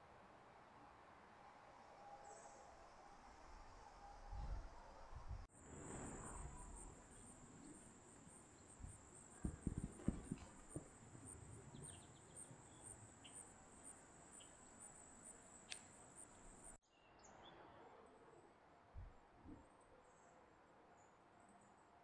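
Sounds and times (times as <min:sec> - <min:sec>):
soft low thumps: 0:08.7 - 0:12.1.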